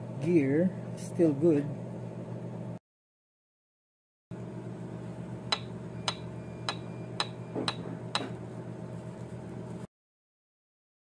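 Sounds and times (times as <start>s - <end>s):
steady low hum: 4.3s - 9.9s.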